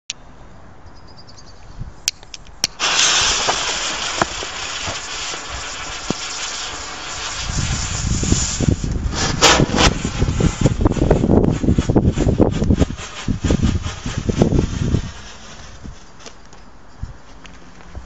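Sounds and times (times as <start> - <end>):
low rumbling with sharp cracks: 2.6 - 16.5
fuse burning: 2.6 - 16.7
firework hissing: 2.7 - 16.6.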